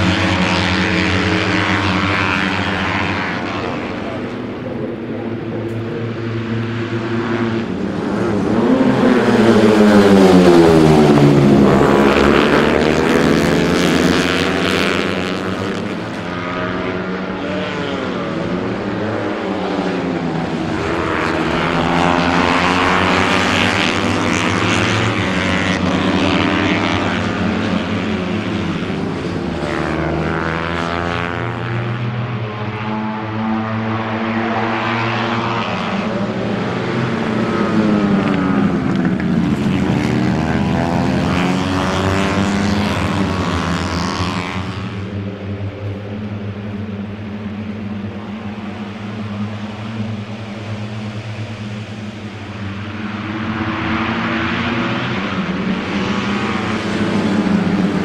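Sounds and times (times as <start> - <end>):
racing motorcycles passing: 0.0 - 58.0.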